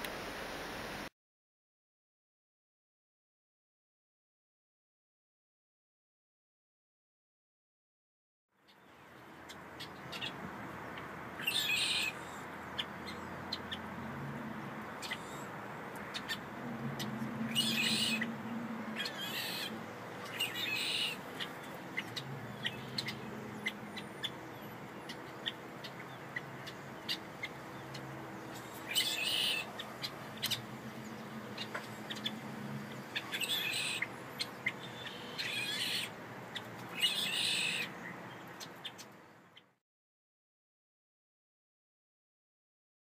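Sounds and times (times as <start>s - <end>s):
birds calling: 8.6s - 39.8s
steady low hum: 12.2s - 33.4s.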